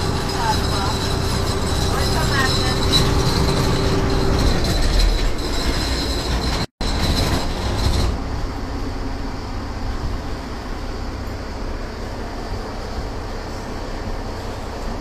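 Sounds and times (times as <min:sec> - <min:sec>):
boat diesel engine rumbling: 0:00.0 - 0:15.0.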